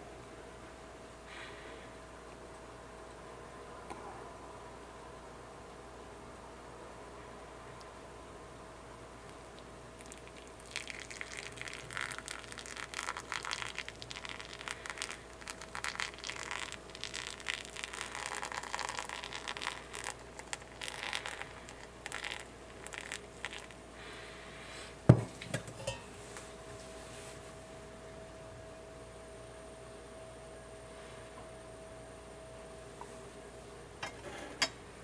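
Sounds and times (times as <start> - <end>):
water pouring onto coffee grounds: 9.3 - 23.8.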